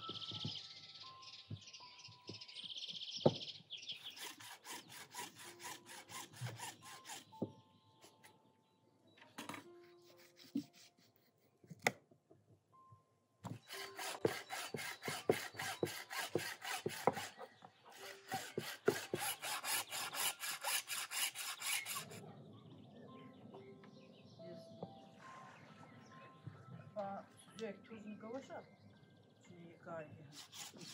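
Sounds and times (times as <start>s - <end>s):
hand saw cutting bone: 4.0s - 7.4s, 9.8s - 11.2s, 13.5s - 22.2s, 30.4s - 30.9s.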